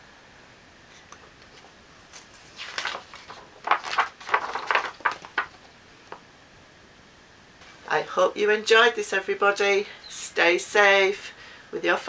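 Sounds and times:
book pages turning: 1.0 - 6.2.

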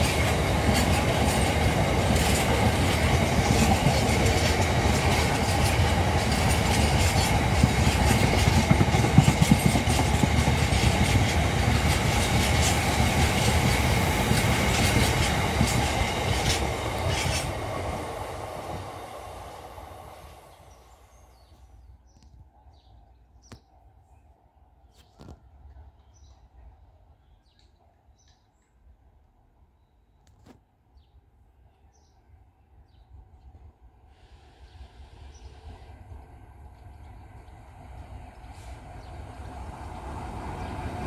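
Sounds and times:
train wheels rumbling on rail: 0.0 - 21.0, 34.2 - 41.0.

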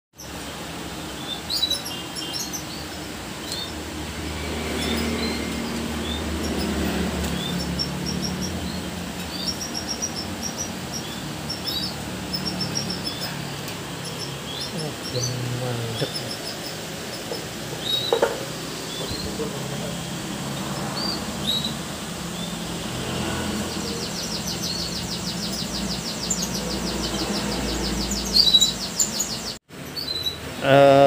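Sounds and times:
canaries chirping: 0.2 - 31.0.

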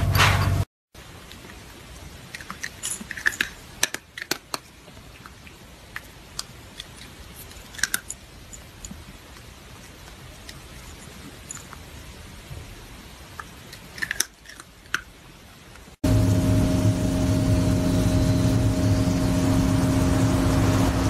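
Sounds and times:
loud rumbling noise: 16.0 - 21.0.

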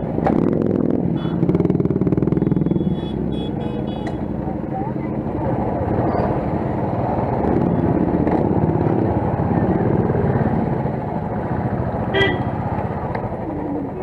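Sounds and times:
motorcycle engine running: 0.0 - 14.0
vehicle horn toot: 2.4 - 4.3, 12.1 - 12.5.

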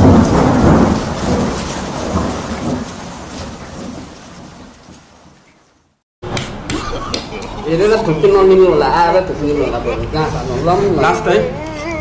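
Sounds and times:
thunder crash with crackling: 0.0 - 5.4.

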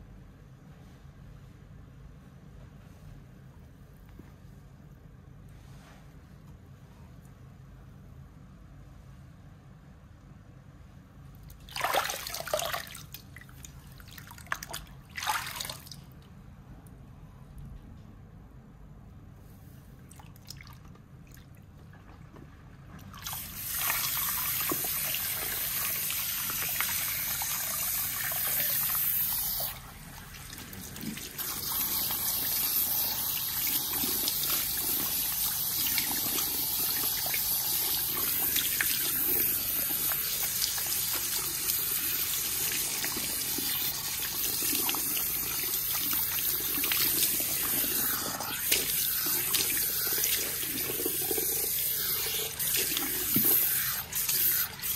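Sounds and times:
water splashing into basin: 11.6 - 16.0
hand shower spraying water: 23.2 - 54.9.

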